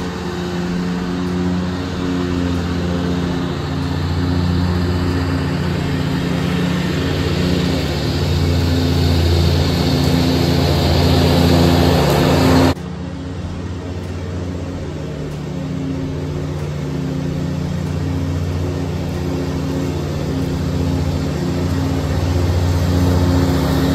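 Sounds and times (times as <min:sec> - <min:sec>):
lawn mower diesel engine running: 0:00.0 - 0:23.9.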